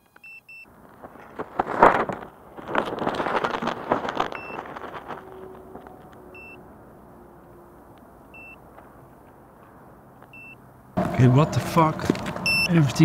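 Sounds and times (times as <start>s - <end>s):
short high beeps: 10.4s - 10.6s, 12.4s - 12.7s.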